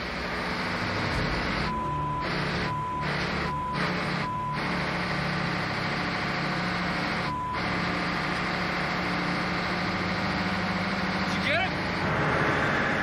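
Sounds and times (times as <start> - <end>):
engine-room machinery drone: 0.0 - 13.0
censor bleeps: 1.6 - 4.8.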